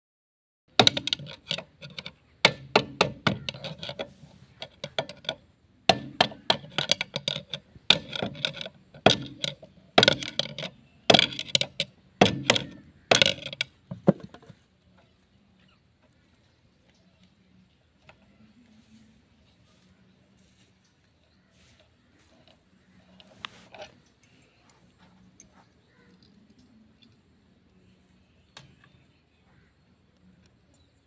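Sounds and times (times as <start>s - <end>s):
hammer striking steel rod: 5.9s - 7.2s.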